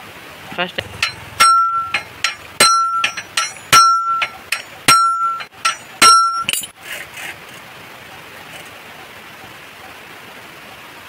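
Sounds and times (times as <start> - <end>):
hammer striking metal: 0.8 - 6.7.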